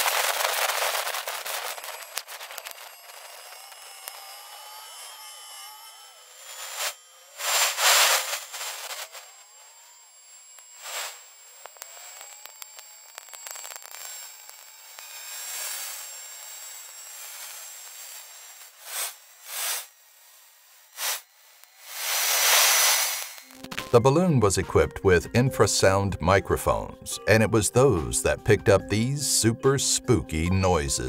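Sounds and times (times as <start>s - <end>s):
hissing whooshes: 21.8s - 23.4s.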